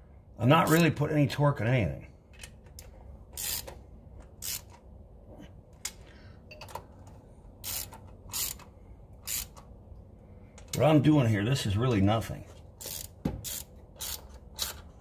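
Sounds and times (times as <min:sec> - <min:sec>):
hand ratchet clicking: 0:03.4 - 0:03.7, 0:04.4 - 0:04.8, 0:07.6 - 0:09.6, 0:12.8 - 0:14.9.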